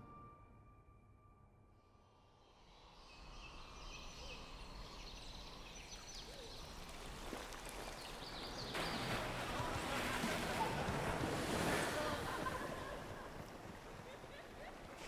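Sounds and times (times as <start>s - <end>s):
small birds chirping: 2.8s - 9.7s.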